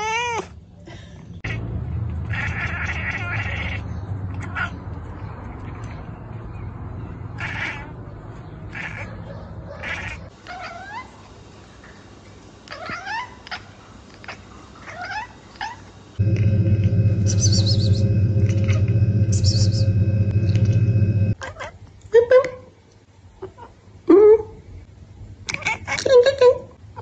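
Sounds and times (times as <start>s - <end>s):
cats meowing: 2.3s - 3.8s
harsh cat cries: 2.3s - 3.8s
high warbling calls: 16.2s - 21.4s
steady low hum: 16.2s - 21.4s.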